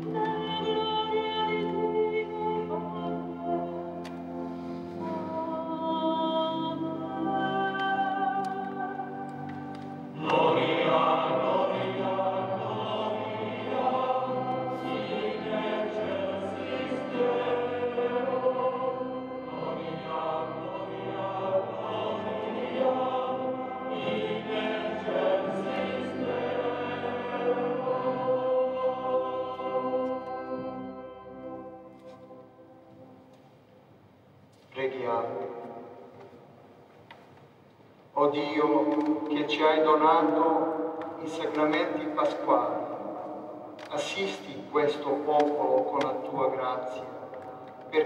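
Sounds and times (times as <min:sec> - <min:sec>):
male choir singing a hymn: 0:10.0 - 0:31.1, 0:38.2 - 0:48.0.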